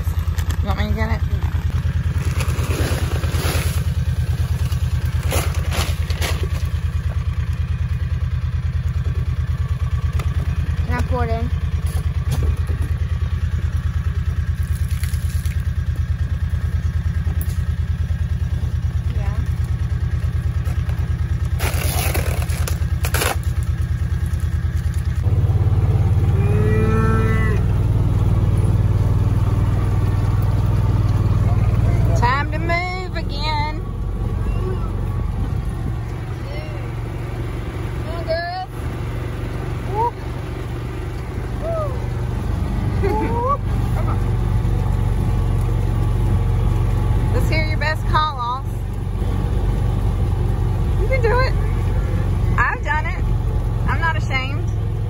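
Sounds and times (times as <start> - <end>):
engine idling: 0.0 - 55.0
plastic bag rustling: 1.9 - 7.0, 21.4 - 25.1
cow mooing: 26.3 - 27.7.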